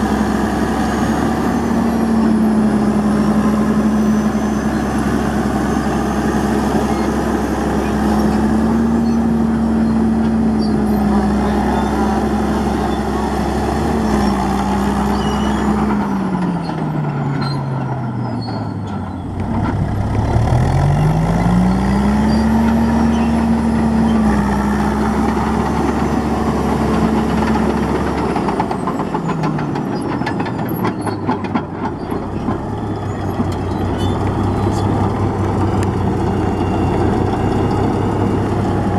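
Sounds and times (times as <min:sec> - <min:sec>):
bulldozer diesel engine running: 0:00.0 - 0:38.9
steel tracks rattling and clanking: 0:26.6 - 0:36.3.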